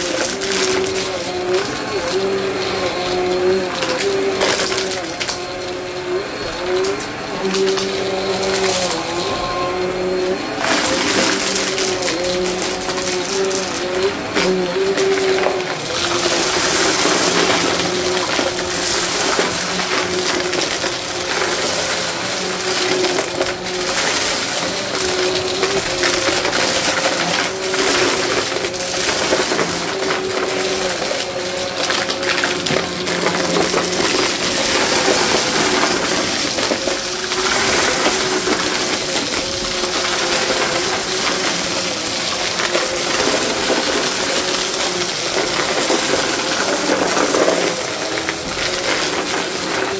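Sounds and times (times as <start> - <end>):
vacuum cleaner motor: 0.0 - 49.9.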